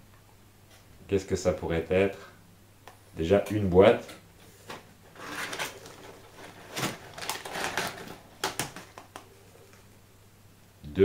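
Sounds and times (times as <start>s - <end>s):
packing paper rustling: 4.6s - 9.2s.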